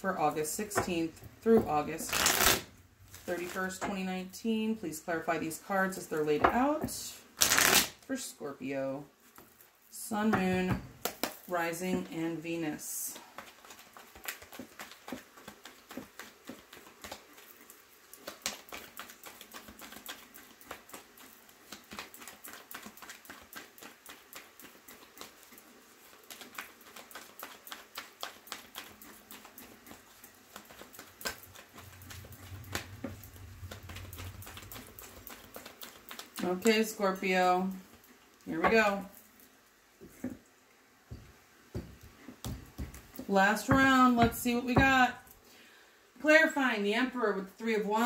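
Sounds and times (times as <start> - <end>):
cards being shuffled: 2.0 - 3.6, 7.4 - 7.9.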